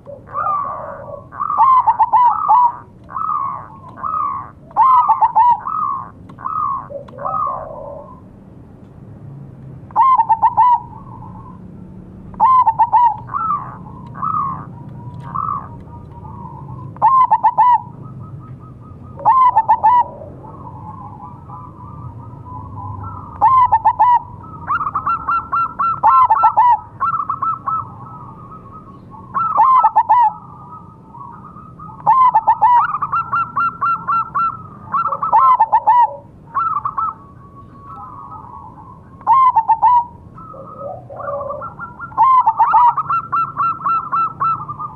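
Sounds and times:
dove cooing: 0.0 - 8.2, 10.0 - 11.6, 12.3 - 44.9.

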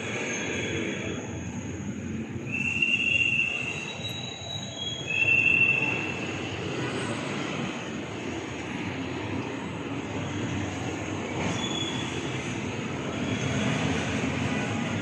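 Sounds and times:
vehicle squealing: 2.4 - 7.3, 11.3 - 14.6.

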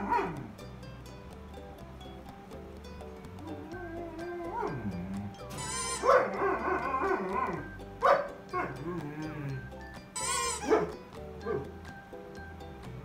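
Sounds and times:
background music: 0.0 - 13.0
dog howling wavering calls: 3.4 - 9.6, 10.2 - 11.7.

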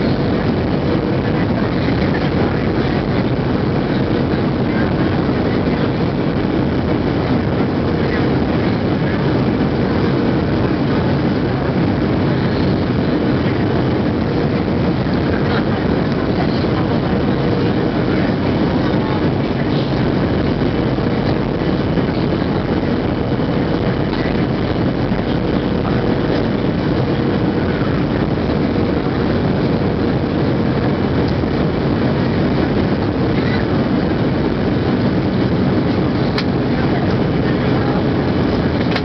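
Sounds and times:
airplane cabin noise: 0.0 - 39.0.

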